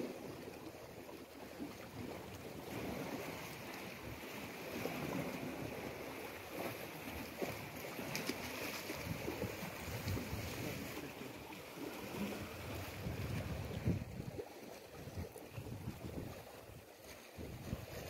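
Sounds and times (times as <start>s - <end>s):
sea washing against rocks: 0.0s - 18.0s
small splash in water: 1.6s - 18.0s
wind buffeting microphone: 12.1s - 16.8s, 17.4s - 18.0s.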